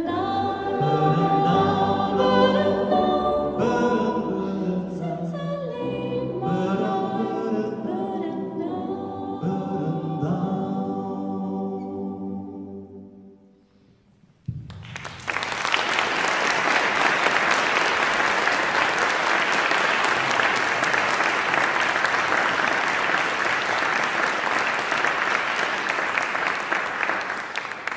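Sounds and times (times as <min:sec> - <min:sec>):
audience applauding: 0:14.6 - 0:27.9.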